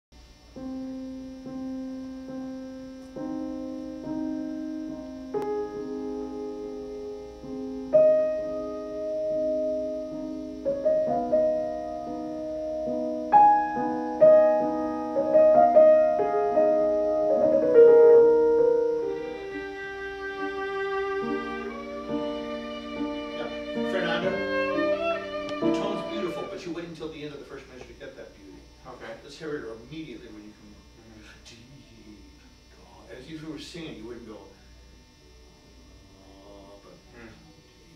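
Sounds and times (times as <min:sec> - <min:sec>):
piano accompaniment: 0:00.5 - 0:27.0
viola melody: 0:07.5 - 0:26.8.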